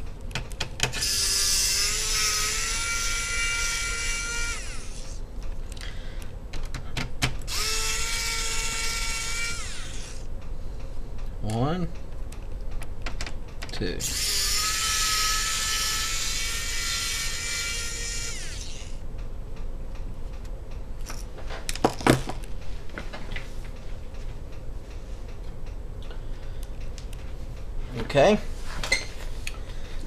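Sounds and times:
electric screwdriver motor whining: 0:01.0 - 0:05.2, 0:07.5 - 0:10.2, 0:14.0 - 0:19.0.

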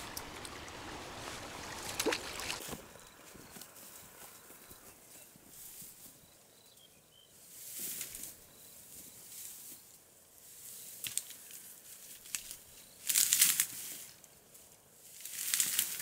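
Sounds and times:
brush rustling and swishing: 0:00.0 - 0:02.8, 0:05.0 - 0:06.2.

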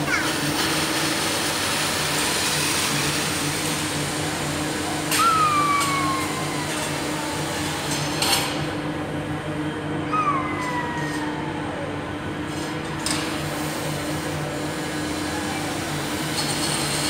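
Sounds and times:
machinery hum: 0:00.0 - 0:17.0
sharp falling squeal: 0:05.1 - 0:06.8.

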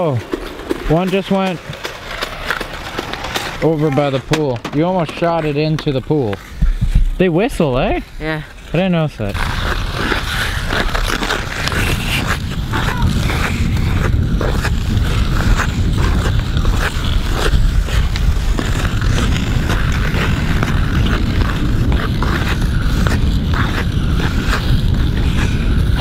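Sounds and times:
scrapes and rustles on microphone: 0:05.1 - 0:26.0
wind buffeting microphone: 0:09.4 - 0:26.0.

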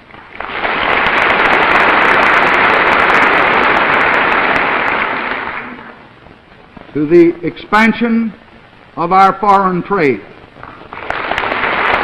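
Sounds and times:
audience applauding: 0:00.0 - 0:06.1, 0:10.6 - 0:12.0.

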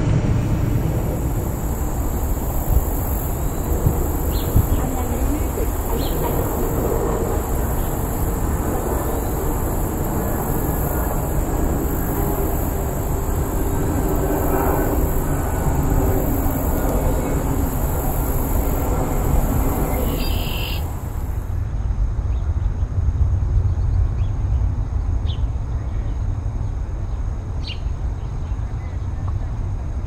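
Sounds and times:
steady high hiss: 0:00.0 - 0:21.7
low outdoor rumble: 0:00.0 - 0:30.0
high bird chirps: 0:19.9 - 0:21.0.

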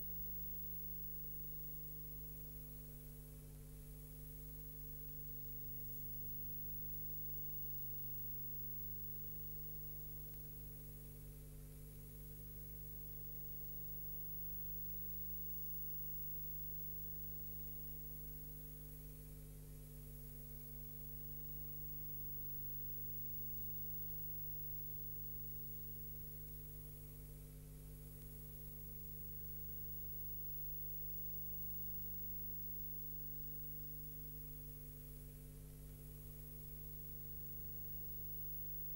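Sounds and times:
electrical hum: 0:12.0 - 0:18.7, 0:36.6 - 0:38.9.

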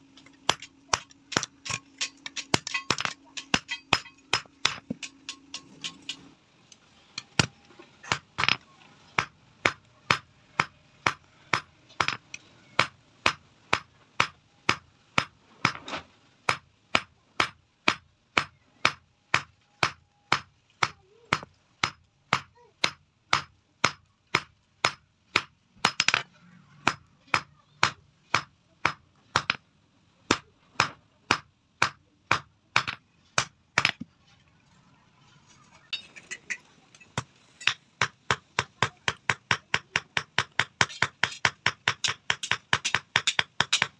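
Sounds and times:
hammer striking metal on anvil: 0:00.4 - 0:06.2, 0:35.9 - 0:43.9.

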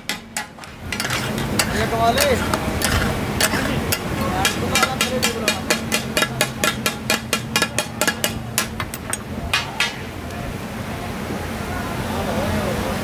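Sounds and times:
metal spatulas clattering on griddle: 0:00.0 - 0:10.0
steady low hum: 0:00.0 - 0:10.7.

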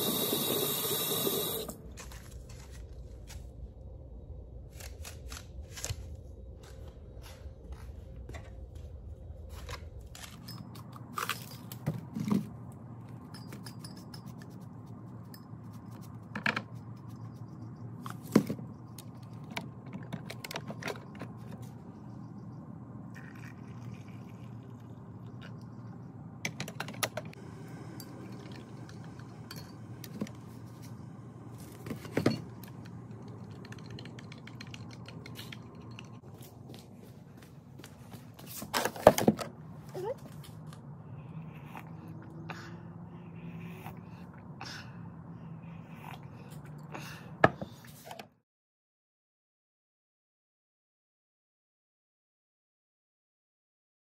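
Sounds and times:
steady low hum: 0:00.0 - 0:47.4
spoon clinking and scraping mug: 0:13.2 - 0:16.0.

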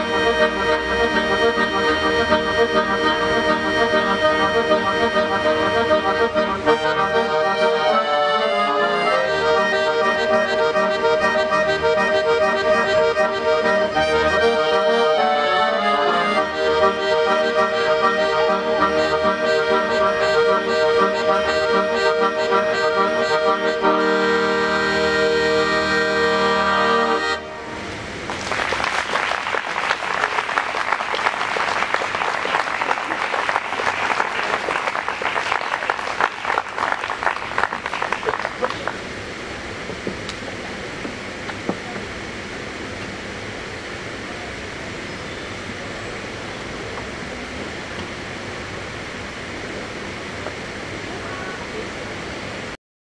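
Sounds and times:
accordions playing: 0:00.0 - 0:28.2
audience applauding: 0:28.2 - 0:39.1.

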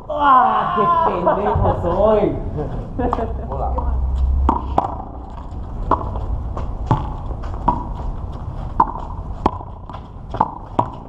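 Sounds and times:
steady low rumble: 0:01.1 - 0:11.0
handball hitting concrete wall: 0:04.5 - 0:05.2, 0:05.8 - 0:06.2, 0:06.8 - 0:08.0, 0:08.8 - 0:11.0.

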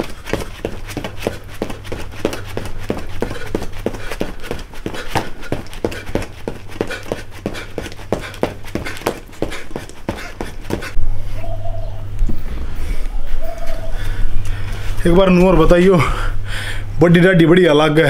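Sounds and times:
feet striking hard dirt: 0:00.0 - 0:11.0.

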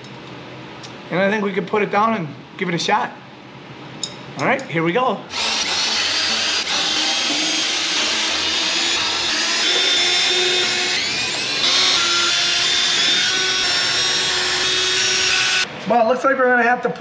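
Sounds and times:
cordless drill running under load: 0:05.3 - 0:15.7.

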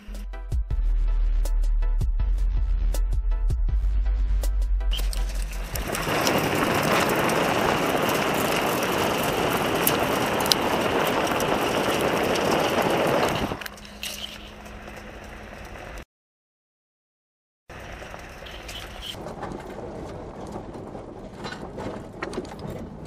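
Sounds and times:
wind rush: 0:05.0 - 0:13.7
tyre rolling over gravel: 0:05.0 - 0:16.0, 0:17.7 - 0:23.0
vehicle driving drone: 0:05.0 - 0:16.0.

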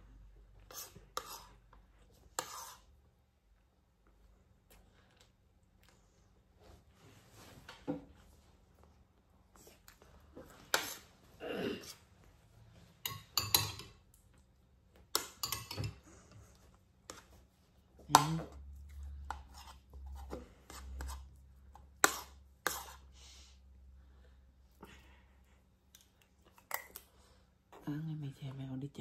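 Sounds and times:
metal spoon scraping a plate: 0:00.7 - 0:01.6, 0:02.4 - 0:02.9, 0:22.0 - 0:23.1.

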